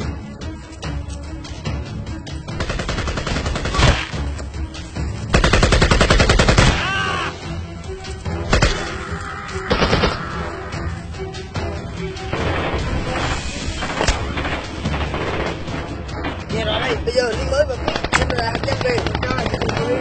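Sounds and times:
background music: 0.0 - 20.0
automatic gunfire: 2.6 - 4.1, 5.3 - 6.8, 17.9 - 20.0.

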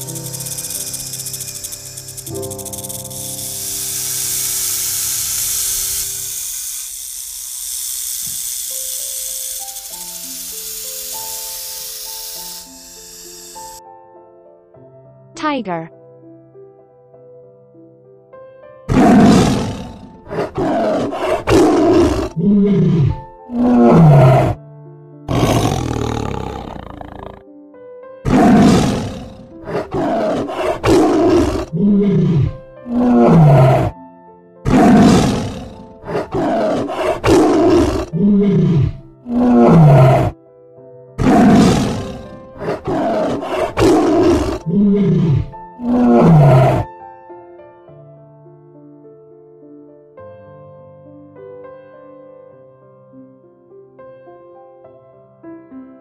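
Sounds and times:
tiger roaring and grunting: 18.9 - 24.6, 25.3 - 27.4, 28.3 - 34.0, 34.6 - 40.4, 41.2 - 46.9
soft background music: 21.5 - 56.0.

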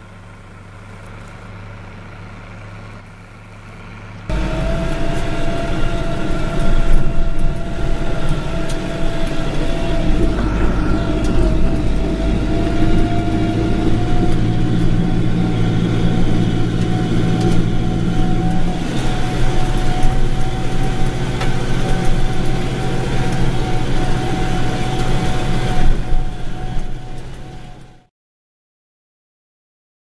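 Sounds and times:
tractor diesel engine running: 0.0 - 28.1
steady high whine: 4.3 - 28.0.

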